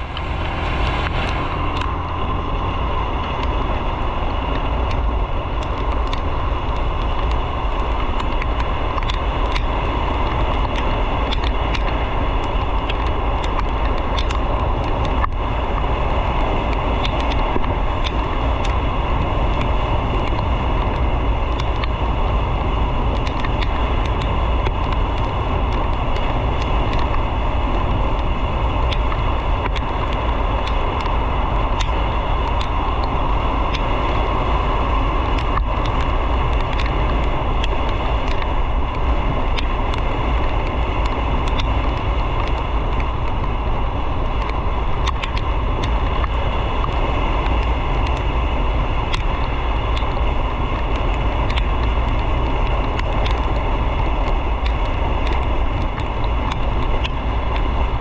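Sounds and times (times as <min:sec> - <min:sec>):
motorcycle engine: 0:00.0 - 0:05.5
wind noise on microphone: 0:00.0 - 0:58.0.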